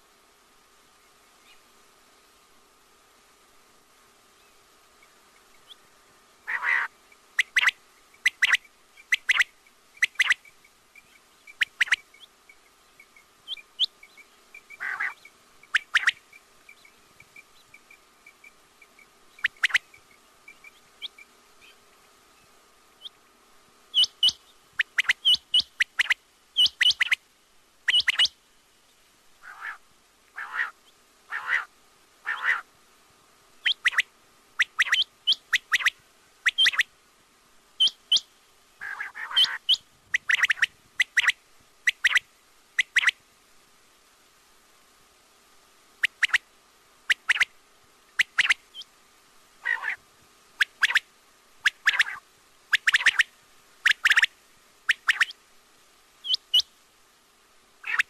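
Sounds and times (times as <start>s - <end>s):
faint steady hum: 0.0s - 58.0s
quail calling: 6.4s - 10.5s, 11.4s - 12.3s, 13.5s - 16.8s, 19.3s - 20.0s, 23.9s - 27.2s, 27.9s - 28.3s, 29.4s - 32.7s, 33.6s - 36.9s, 38.8s - 42.2s, 48.2s - 48.9s, 49.6s - 50.0s, 50.6s - 51.0s, 51.6s - 52.2s, 52.8s - 54.3s, 54.9s - 55.4s, 56.2s - 56.7s.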